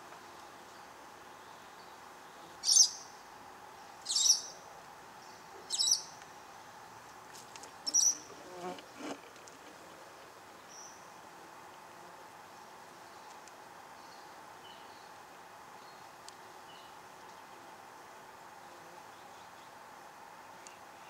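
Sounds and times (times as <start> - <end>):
faint steady hum: 0.0 - 21.0
bee buzzing: 7.8 - 10.1.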